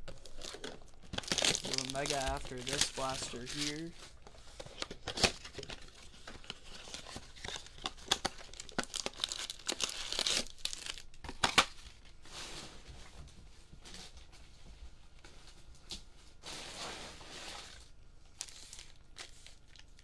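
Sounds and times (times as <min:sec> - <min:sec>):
wrapping crinkling: 0:00.0 - 0:12.0, 0:17.5 - 0:20.0
cardboard box being torn open: 0:00.4 - 0:03.9.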